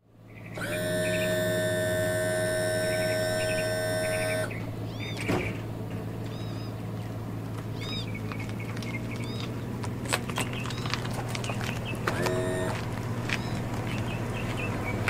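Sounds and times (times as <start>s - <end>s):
steady low hum: 0.0s - 15.0s
bird chirps: 0.3s - 1.6s, 2.6s - 5.6s, 6.2s - 6.8s, 7.7s - 9.6s, 13.3s - 15.0s.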